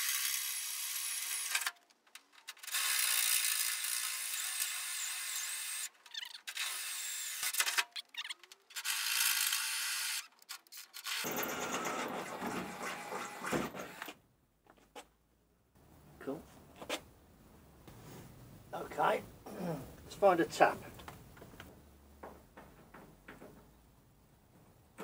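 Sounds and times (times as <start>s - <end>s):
cordless drill boring steel: 0.0s - 1.6s, 2.7s - 7.5s, 8.8s - 10.2s.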